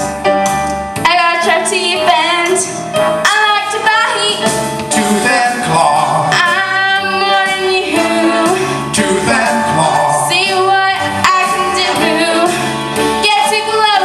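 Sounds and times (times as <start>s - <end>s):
instrumental accompaniment: 0.0s - 14.0s
woman singing with vibrato: 1.0s - 4.4s, 6.3s - 8.8s, 10.1s - 14.0s.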